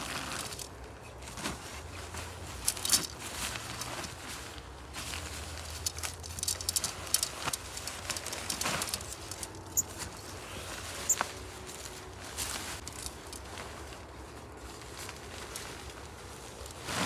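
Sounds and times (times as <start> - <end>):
tent fabric rustling: 0.0 - 17.0
tent poles clicking together: 2.5 - 4.3, 5.0 - 11.4, 12.5 - 13.9.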